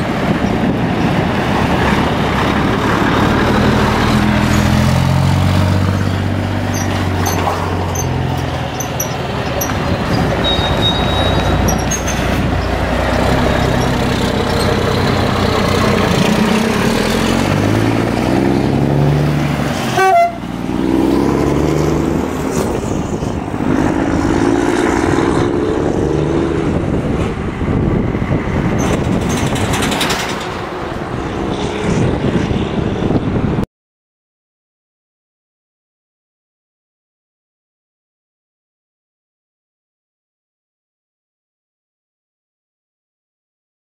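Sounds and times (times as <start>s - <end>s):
truck diesel engine accelerating: 0.0s - 33.6s.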